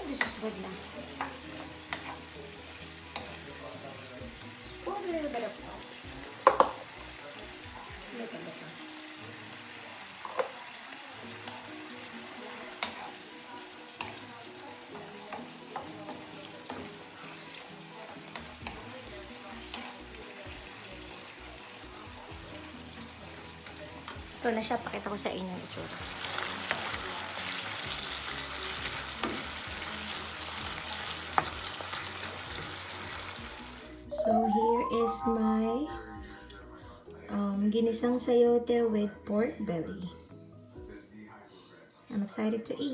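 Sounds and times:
food sizzling in a frying pan: 0.0s - 35.8s
spatula knocking against pan: 6.4s - 6.8s.

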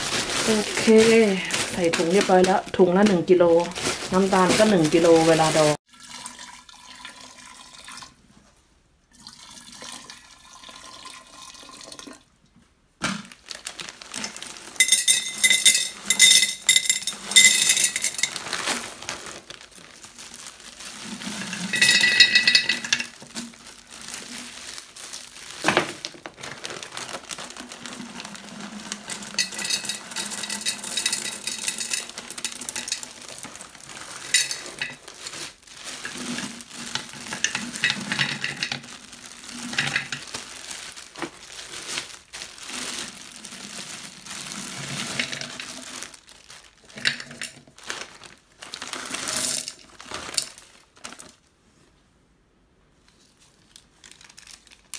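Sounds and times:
plastic bag crinkling: 0.0s - 5.8s, 13.1s - 51.5s, 53.1s - 54.9s
fruit clattering into glass jar: 14.8s - 18.4s, 21.4s - 23.2s, 29.2s - 33.2s.

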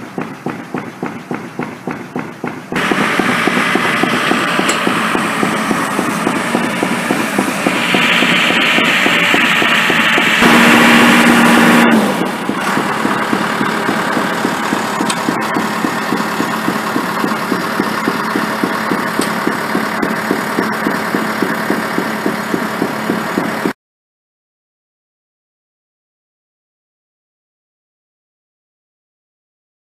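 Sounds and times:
construction machinery engine running: 0.0s - 23.8s.

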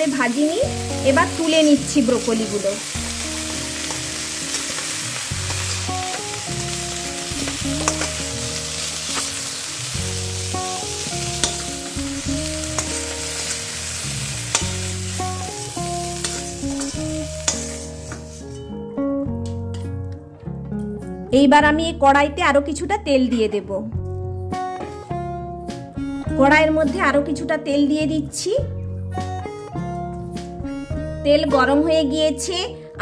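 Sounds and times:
broccoli sizzling in oil: 0.0s - 18.6s
background music with bass: 0.6s - 32.6s
metal spatula scraping pan: 16.2s - 18.6s.

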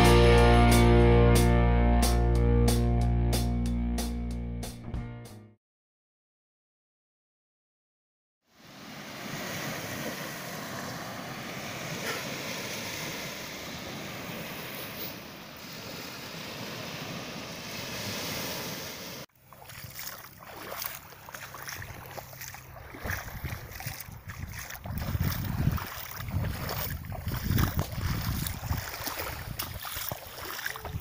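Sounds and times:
small waves washing on shore: 8.5s - 31.0s
water lapping around wading feet: 15.6s - 31.0s
wind on microphone: 22.7s - 31.0s.

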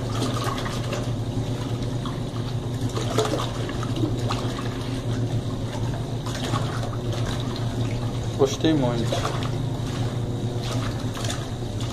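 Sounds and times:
washing machine hum: 0.0s - 11.9s
water splashing and sloshing: 0.0s - 11.9s.

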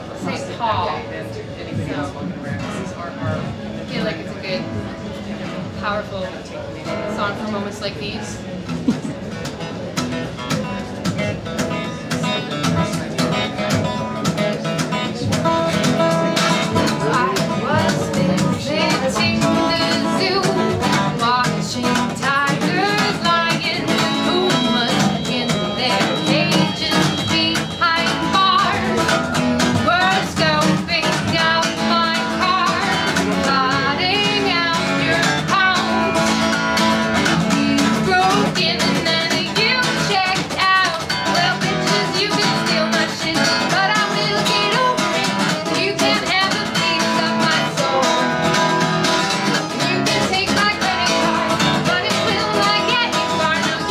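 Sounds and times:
acoustic guitar: 0.0s - 53.9s
woman singing: 17.1s - 36.5s, 37.2s - 53.9s.

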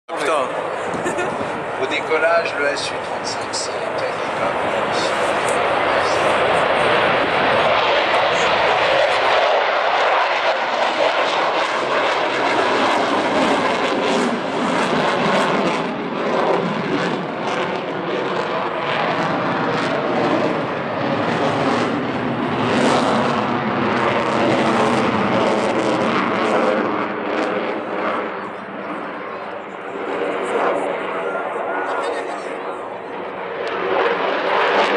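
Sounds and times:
jet engines roaring: 0.1s - 34.9s.

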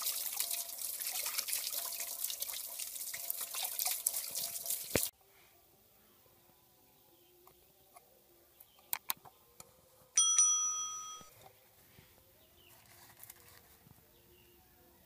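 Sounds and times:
bright bell ding: 10.2s - 11.3s.

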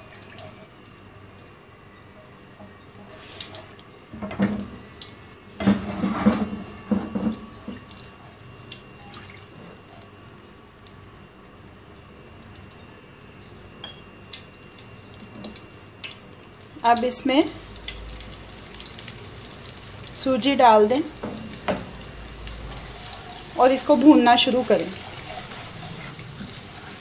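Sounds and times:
spatula scraping pan: 5.6s - 6.5s, 22.7s - 27.0s
spices crackling in hot fat: 7.4s - 27.0s.

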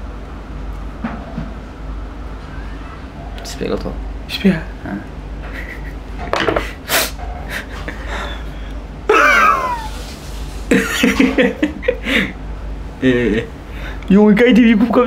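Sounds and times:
bursts of laughter: 5.4s - 6.1s, 7.5s - 10.0s
sharp breaths and sniffs: 6.8s - 7.2s
man's pained whining cry: 9.1s - 9.9s.

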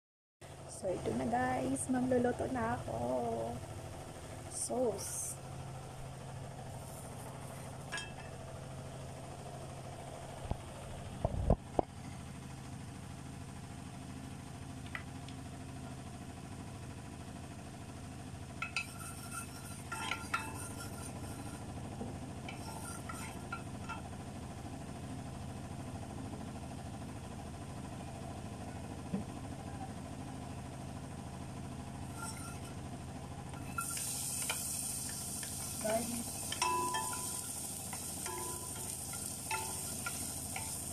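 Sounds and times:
low hum: 0.4s - 40.9s
spatula clinking on pot: 18.6s - 21.5s, 36.2s - 40.9s
hot oil sizzling: 18.6s - 21.8s, 22.4s - 24.1s, 32.0s - 32.7s, 33.5s - 40.9s.

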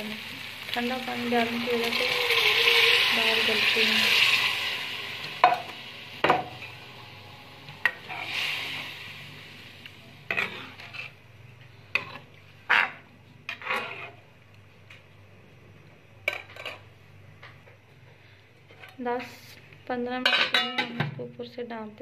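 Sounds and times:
soft sizzle: 0.0s - 20.6s
metal spoon scraping pot: 1.8s - 4.6s, 10.3s - 11.2s, 11.9s - 14.2s.

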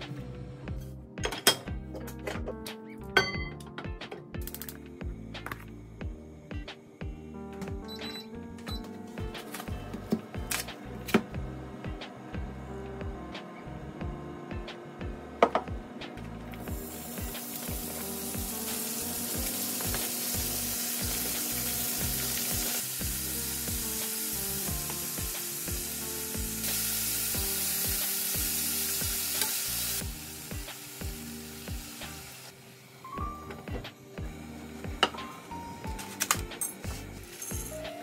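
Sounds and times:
meat sizzling in hot oil: 16.6s - 33.4s.

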